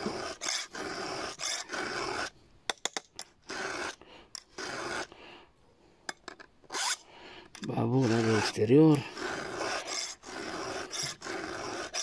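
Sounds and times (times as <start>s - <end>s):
file rasping on saw chain: 0.0s - 2.3s, 3.2s - 5.1s, 6.7s - 7.0s, 7.6s - 12.0s.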